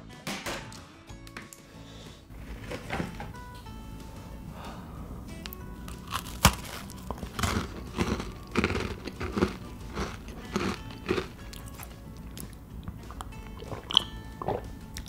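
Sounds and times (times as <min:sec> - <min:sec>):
crunchy chewing: 0:05.5 - 0:15.0
cookie snapping when bitten: 0:06.1 - 0:12.6.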